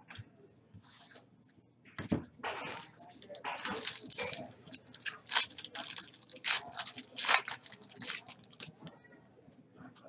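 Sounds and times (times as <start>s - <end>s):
foil wrapper tearing and crinkling: 3.6s - 8.7s.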